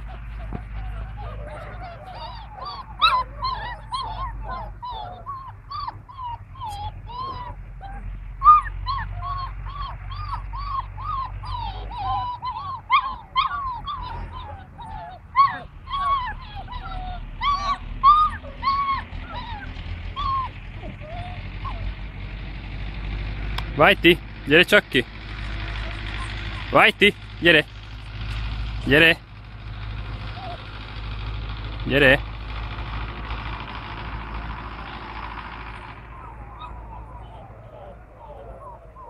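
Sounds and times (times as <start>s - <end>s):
dog yelps: 0.0s - 22.0s, 25.7s - 27.0s, 30.3s - 30.7s, 35.8s - 39.0s
dogs whining and yipping: 0.0s - 22.2s, 25.4s - 27.2s, 30.1s - 31.0s, 34.7s - 39.0s.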